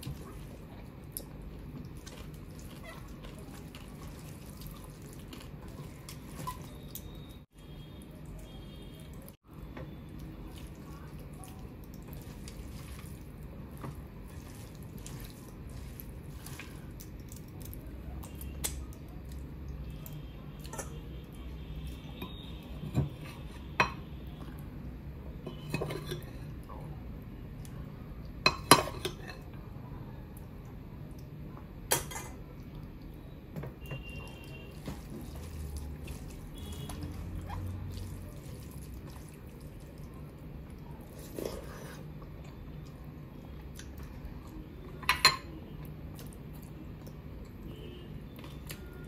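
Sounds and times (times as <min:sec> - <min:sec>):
eating by hand: 0:00.0 - 0:09.3, 0:10.1 - 0:22.8, 0:34.3 - 0:45.0.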